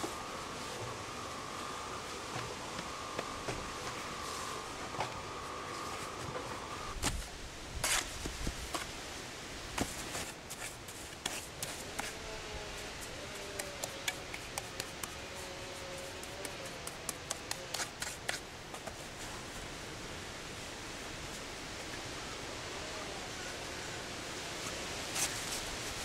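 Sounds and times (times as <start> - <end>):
steady hiss: 0.0 - 26.0
trowel scraping wet mortar: 7.8 - 8.2, 13.0 - 18.4
rocks knocking and grating: 13.0 - 19.0.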